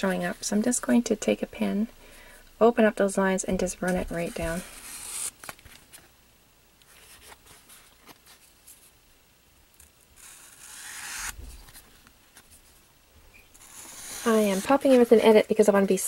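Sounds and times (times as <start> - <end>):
marker scratching on cardboard: 13.6 - 15.0.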